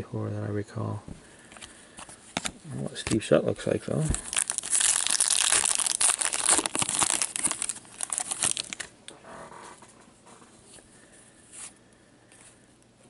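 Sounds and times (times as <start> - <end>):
foil wrapper tearing and crinkling: 4.1 - 8.9.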